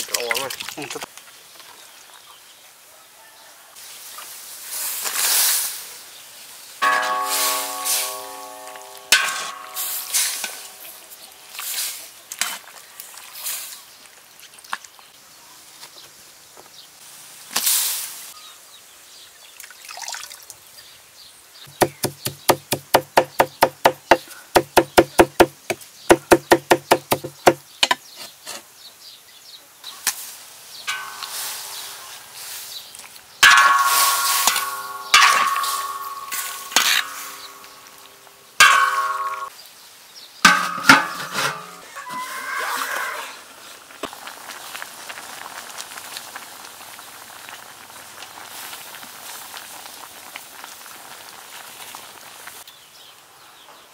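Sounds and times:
knife chopping on wooden board: 21.7 - 28.0.

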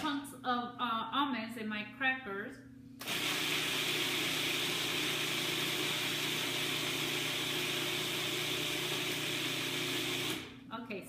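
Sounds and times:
food processor grinding nuts: 3.0 - 10.6.

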